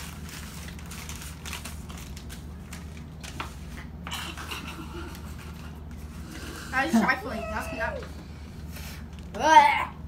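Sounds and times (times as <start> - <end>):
paper packets crinkling: 0.0 - 3.8.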